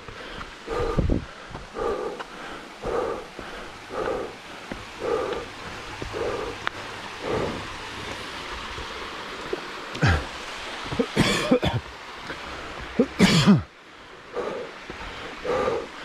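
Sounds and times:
small stream rushing: 0:00.0 - 0:16.0
person coughing: 0:10.0 - 0:10.3, 0:11.0 - 0:11.8, 0:13.0 - 0:13.7.

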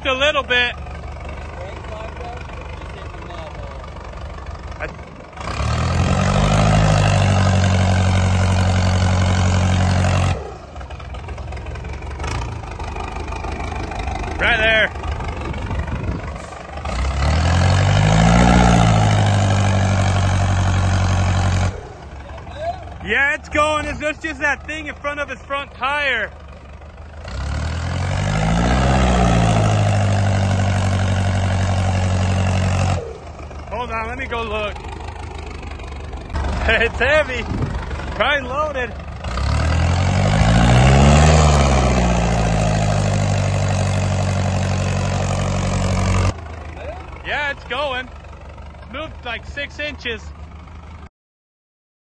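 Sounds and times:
truck engine revving: 0:00.0 - 0:51.1.

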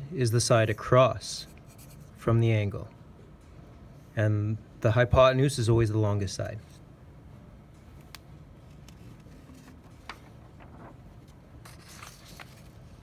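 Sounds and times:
paper rustling: 0:08.1 - 0:13.0.

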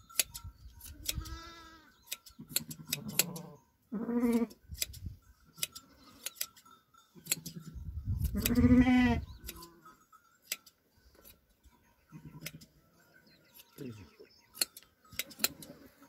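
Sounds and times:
hand shears snipping fleece: 0:00.1 - 0:01.4, 0:02.1 - 0:03.5, 0:14.6 - 0:15.8
sheep bleating: 0:01.1 - 0:02.0, 0:02.7 - 0:04.6, 0:08.3 - 0:09.9.

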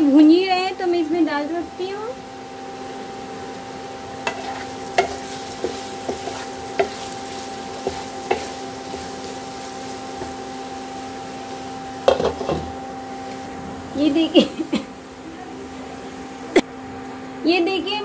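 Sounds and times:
cooktop hum: 0:00.0 - 0:18.0
spatula scraping a pan: 0:04.2 - 0:10.6.

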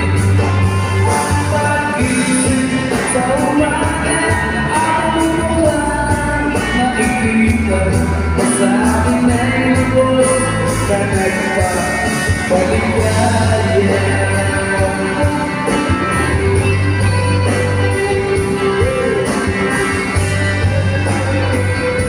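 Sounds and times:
live rock band: 0:00.0 - 0:22.0
bending lead guitar note: 0:12.2 - 0:22.0.

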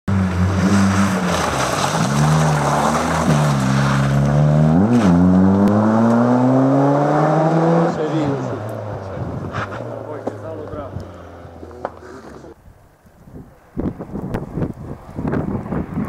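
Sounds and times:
rally car engine revving: 0:00.1 - 0:12.6.

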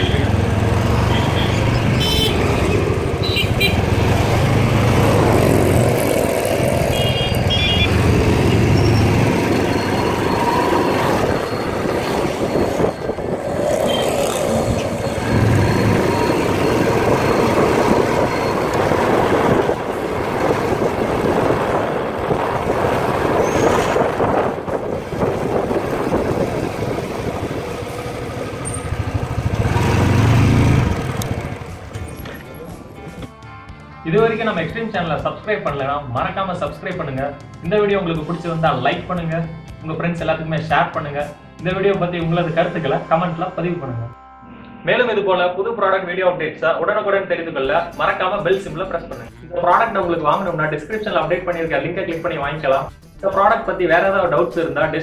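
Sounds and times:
motorcycle engine revving: 0:00.0 - 0:33.3.

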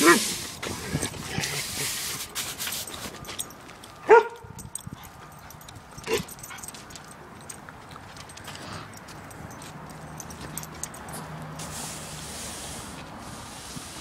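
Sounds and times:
dog barking: 0:04.1 - 0:04.4.

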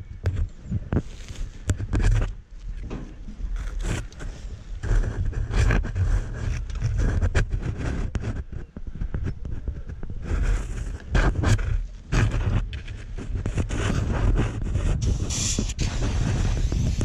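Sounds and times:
gear rustling against camera: 0:00.0 - 0:17.0
aerosol can spraying hiss: 0:15.1 - 0:17.0.

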